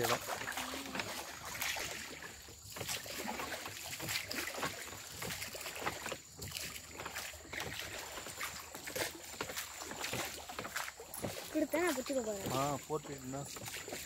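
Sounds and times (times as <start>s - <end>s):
water lapping against boat hull: 0.0s - 14.0s.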